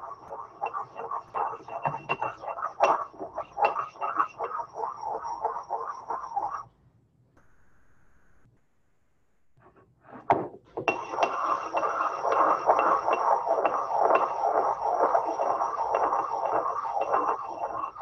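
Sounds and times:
pestle scraping in mortar: 0.0 - 6.6, 10.9 - 18.0.

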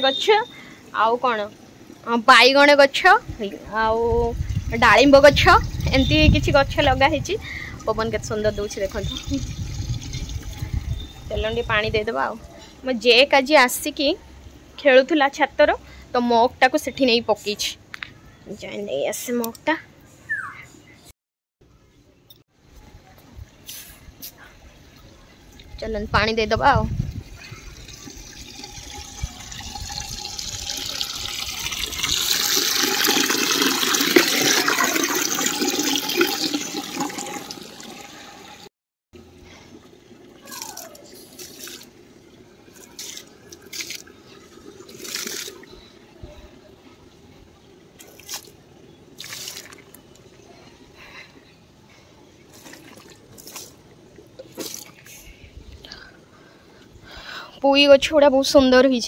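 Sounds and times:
water running into metal mug: 27.1 - 38.7
water splashing on plants: 40.4 - 45.7, 48.0 - 50.2, 52.5 - 55.2.

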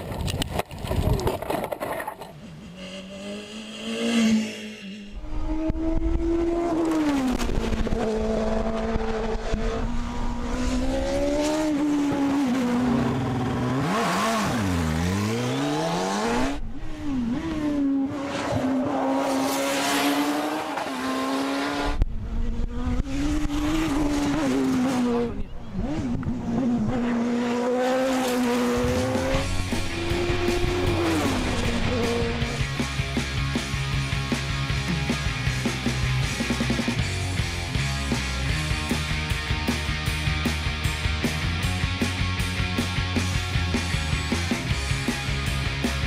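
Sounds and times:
racing car engines at high revs: 2.5 - 33.1.

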